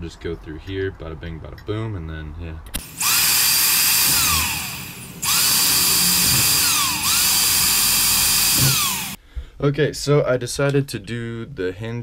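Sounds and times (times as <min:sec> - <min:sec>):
electric drill boring metal: 0:02.8 - 0:09.2.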